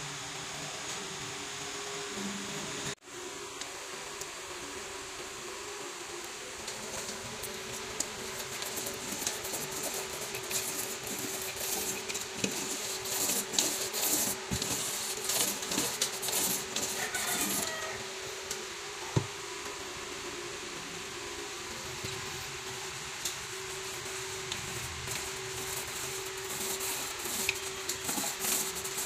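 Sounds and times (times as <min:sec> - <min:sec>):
steady hum: 0:00.0 - 0:29.0
paint roller crackling hiss: 0:06.4 - 0:18.6, 0:21.7 - 0:29.0.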